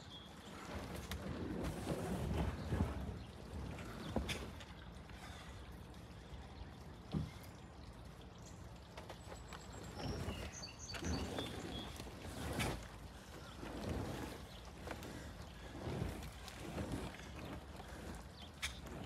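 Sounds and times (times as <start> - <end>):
wind rumbling on microphone: 0.0 - 5.4, 9.3 - 19.0
wooden shelter dragged over grass: 0.0 - 5.4, 8.9 - 19.0.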